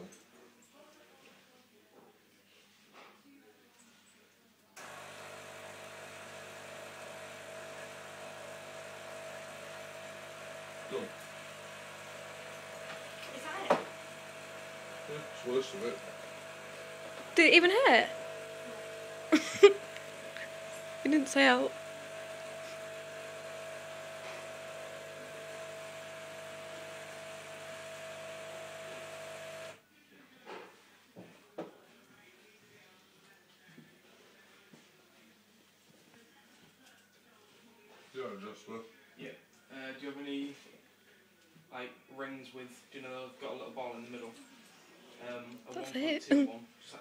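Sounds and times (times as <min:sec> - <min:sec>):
electric motor whining: 0:04.8 - 0:29.8
electrical machine hum: 0:04.8 - 0:29.8.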